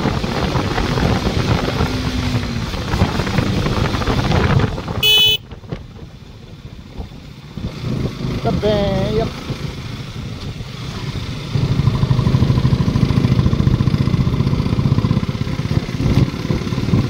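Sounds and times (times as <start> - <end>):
motorcycle engine riding: 0.0 - 17.0
wind rush: 0.0 - 17.0
vehicle horn toot: 5.0 - 5.5.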